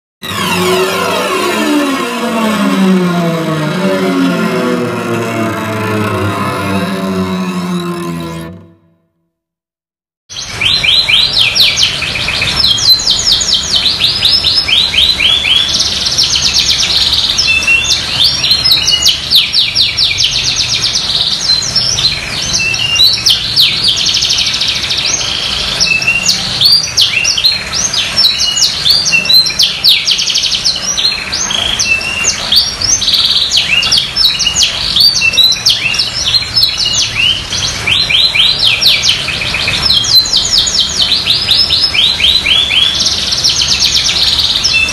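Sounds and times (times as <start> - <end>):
canary singing trills: 10.3 - 44.9.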